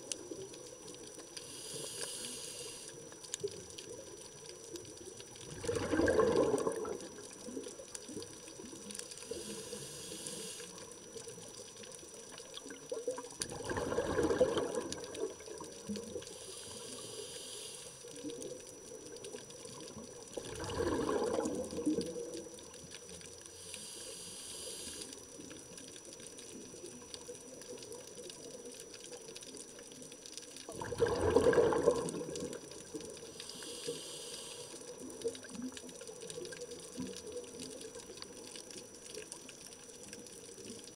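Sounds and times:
regulator hiss on inhale: 0.0s - 3.5s, 8.8s - 11.7s, 15.0s - 18.7s, 22.0s - 26.6s, 32.3s - 35.5s
bubbling exhaust: 5.4s - 7.3s, 13.4s - 17.8s, 20.4s - 22.3s, 30.7s - 35.8s.

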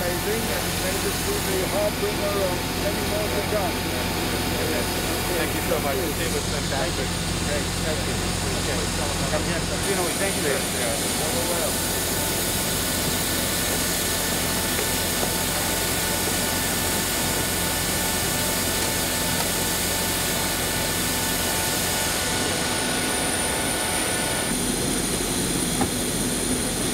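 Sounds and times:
jet aircraft whine and rush: 18.7s - 26.9s.

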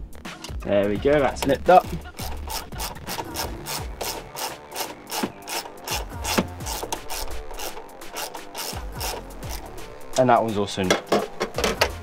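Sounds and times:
ratchet wrench clicking: 1.4s - 9.8s.

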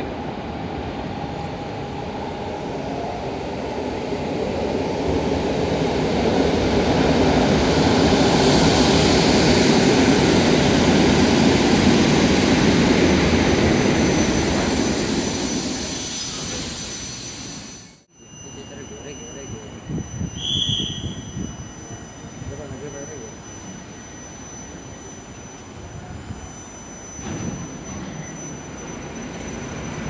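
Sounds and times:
high-pitched whine: 1.3s - 30.0s
train wheels on rails: 26.9s - 30.0s.

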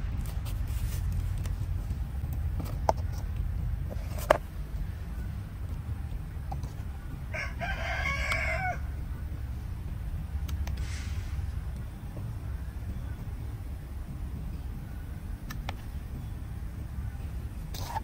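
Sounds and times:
steady low rumble: 0.0s - 18.0s
rooster crowing: 7.3s - 9.0s.

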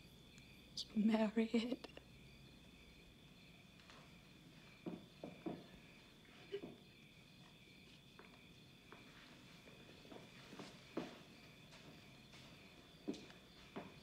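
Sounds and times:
crickets chirping: 0.0s - 14.0s
soft footsteps: 7.4s - 14.0s.

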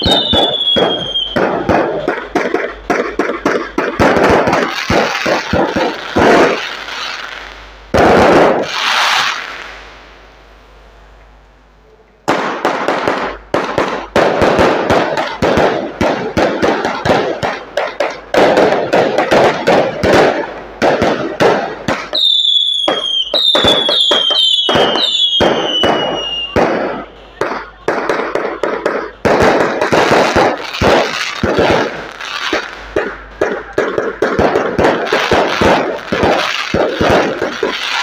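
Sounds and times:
firecrackers cracking and popping: 0.0s - 10.2s, 12.2s - 38.0s
whistles falling in pitch: 22.2s - 26.6s.

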